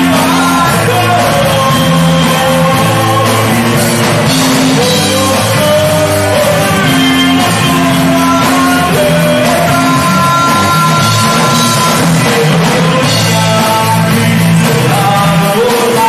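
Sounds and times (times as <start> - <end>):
bass guitar: 0.0 - 16.0
drums: 0.0 - 16.0
electric guitars: 0.0 - 16.0
person singing: 0.0 - 16.0.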